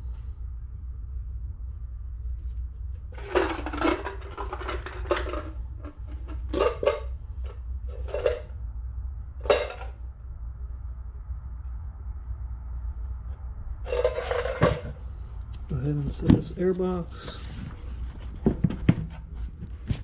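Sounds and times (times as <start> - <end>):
low hum: 0.0 - 20.0
metal tools clattering: 3.2 - 7.1, 9.4 - 9.9.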